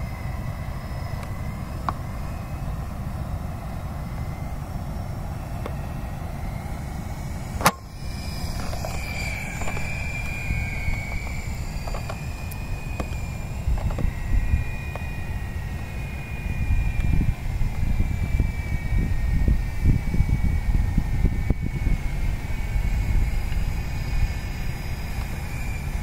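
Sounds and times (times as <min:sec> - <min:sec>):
distant helicopter whine: 0:00.0 - 0:26.0
wind rumble on microphone: 0:00.0 - 0:26.0.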